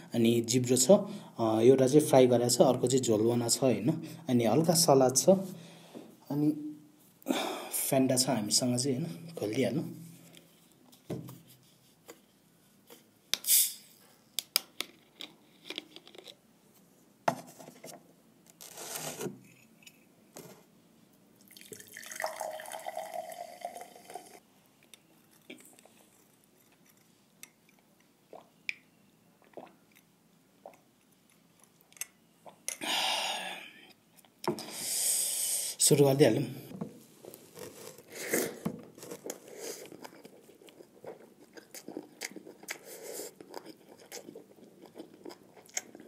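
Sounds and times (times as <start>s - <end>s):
liquid pouring: 21.4s - 24.4s
soda fizzing: 21.5s - 24.4s.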